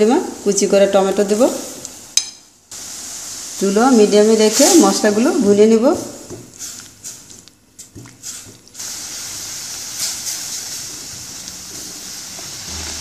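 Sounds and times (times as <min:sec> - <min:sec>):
paste sizzling in a pan: 0:02.7 - 0:13.0.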